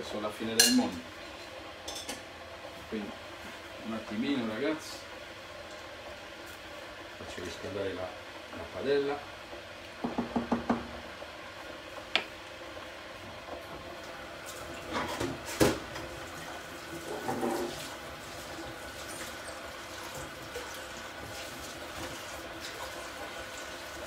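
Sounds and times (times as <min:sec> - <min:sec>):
spoon knocking on wooden board: 0:10.0 - 0:10.9.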